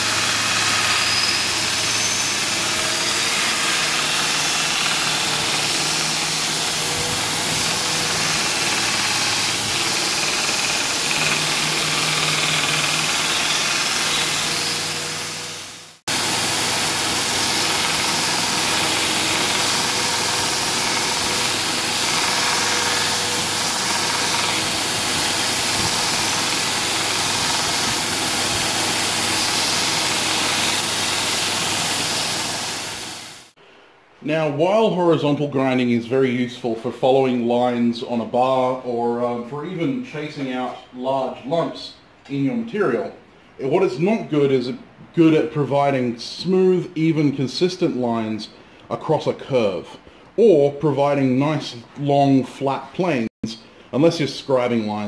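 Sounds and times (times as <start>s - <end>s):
belt grinder grinding steel: 0.0s - 33.5s.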